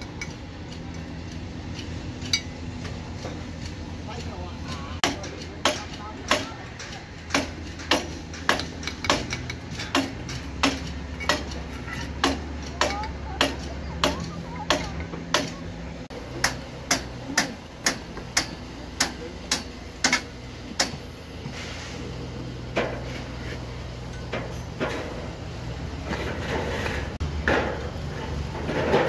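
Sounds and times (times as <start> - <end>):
trowel tapping bricks: 5.0 - 15.6.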